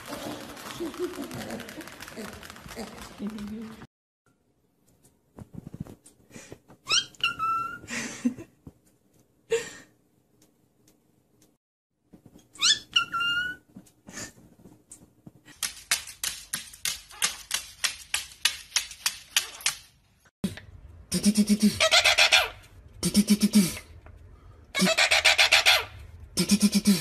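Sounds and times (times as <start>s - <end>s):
newspaper rustling: 0.0s - 3.9s
cockatiel whistling calls: 6.9s - 7.8s.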